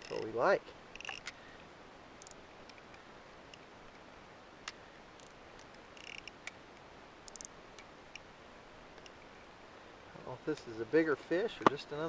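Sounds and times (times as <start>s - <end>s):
fishing tackle clicking and rattling: 0.0s - 1.4s, 2.2s - 4.0s, 5.2s - 6.6s, 7.2s - 8.3s
low steady hiss: 0.0s - 12.0s.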